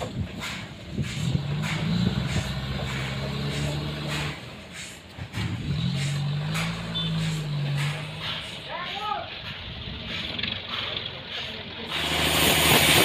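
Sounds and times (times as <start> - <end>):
forklift engine under load: 0.0 - 8.7, 9.4 - 13.0.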